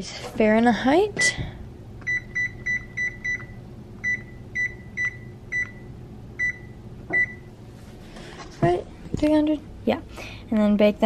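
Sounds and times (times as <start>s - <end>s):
oven control panel beeps: 2.0s - 7.5s.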